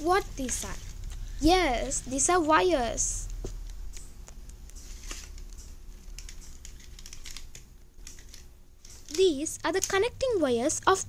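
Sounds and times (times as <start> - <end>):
hands handling wires clicking: 3.3 - 10.0.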